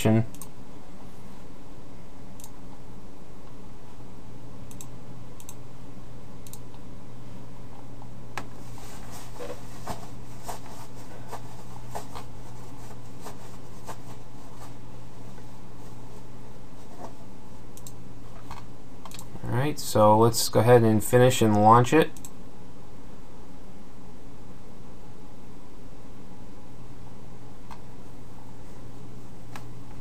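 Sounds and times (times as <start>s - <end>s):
low hum and hiss: 0.0s - 30.0s
keyboard and mouse clicks: 17.8s - 19.3s.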